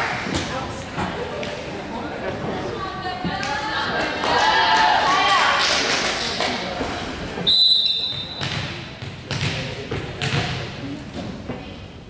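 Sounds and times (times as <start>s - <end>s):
people chattering in gym: 0.0s - 12.0s
referee whistle blast: 7.4s - 8.4s.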